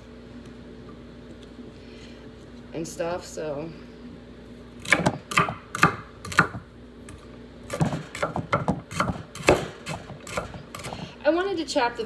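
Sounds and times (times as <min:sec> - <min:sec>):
knife chopping on wooden board: 0:04.8 - 0:06.6, 0:07.7 - 0:11.1.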